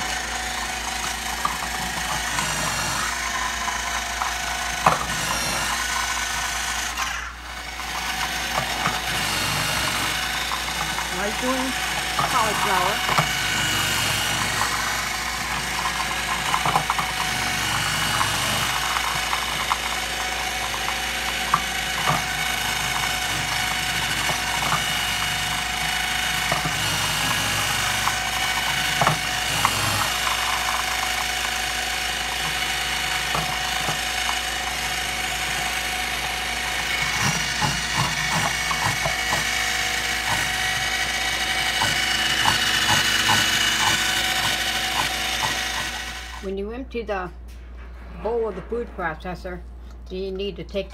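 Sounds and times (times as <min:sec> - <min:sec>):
food processor motor whining: 0:00.0 - 0:46.5
pieces knocking against spinning disc: 0:14.3 - 0:46.1.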